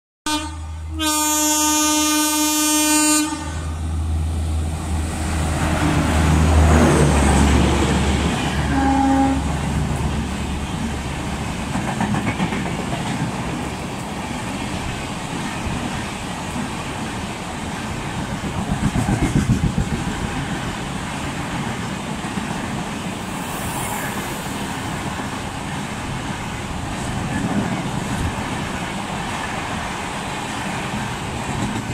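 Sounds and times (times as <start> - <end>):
train horn: 0.3 - 3.8, 8.4 - 9.6
wheels clacking over rail joints: 9.6 - 23.2, 25.1 - 31.9.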